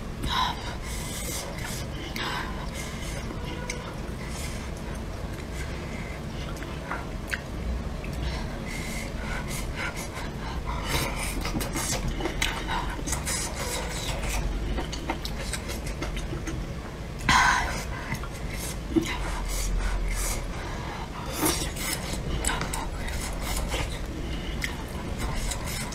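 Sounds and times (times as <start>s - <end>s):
person chewing: 4.6s - 8.2s, 10.8s - 16.7s, 21.2s - 25.9s.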